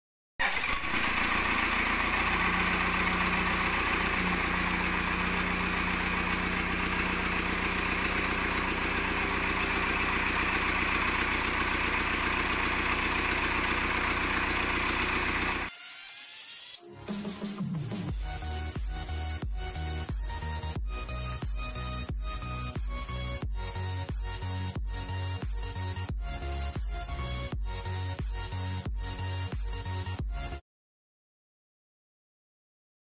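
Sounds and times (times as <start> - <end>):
diesel engine idling: 0.4 - 15.7.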